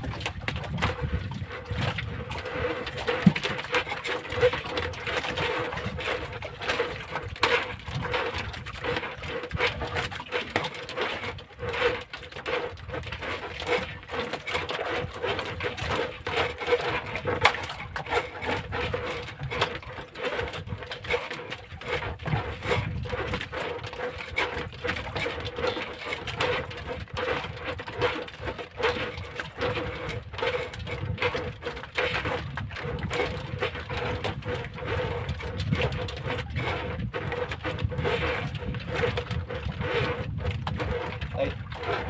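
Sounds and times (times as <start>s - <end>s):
wind on microphone: 0.0s - 10.2s, 20.4s - 25.2s, 28.4s - 42.0s
water lapping against wooden boat: 0.0s - 42.0s.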